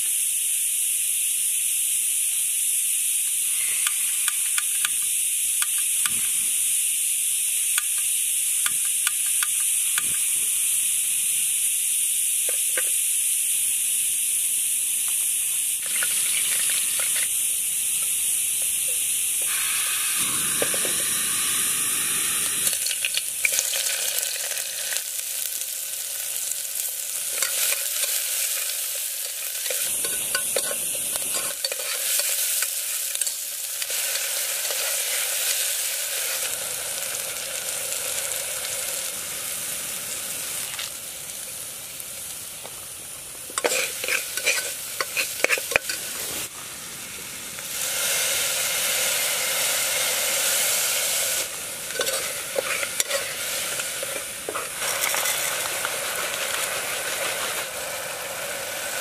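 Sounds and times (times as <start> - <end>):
oil and spices sizzling: 0.0 - 59.0
metal spoon scraping pot: 43.6 - 46.0, 51.9 - 55.5.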